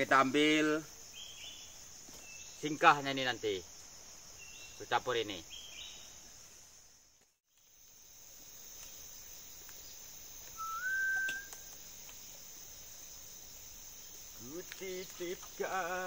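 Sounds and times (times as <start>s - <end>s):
insects droning: 0.0s - 16.0s
whistled rising note: 10.6s - 11.6s.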